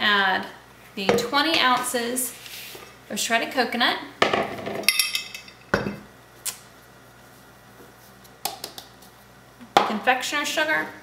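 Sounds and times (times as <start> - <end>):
ceramic bowl clink: 4.9 - 6.0.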